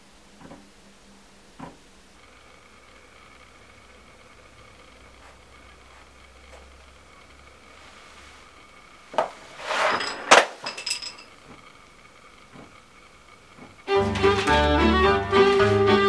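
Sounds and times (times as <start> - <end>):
hard objects on wooden table: 5.1 - 13.9
violin string music: 13.8 - 16.0.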